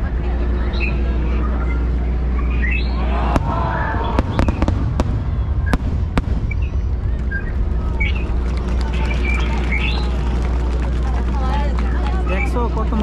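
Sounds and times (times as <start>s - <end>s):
steady low rumble: 0.0s - 13.0s
fireworks bursting with bangs: 3.3s - 10.2s.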